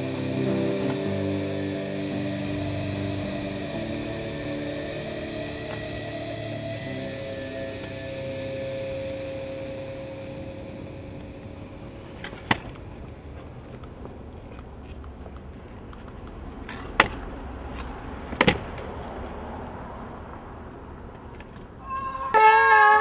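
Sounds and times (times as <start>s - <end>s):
scooter wheels rolling on concrete: 12.0s - 19.4s
scooter clacking on concrete: 12.2s - 18.9s.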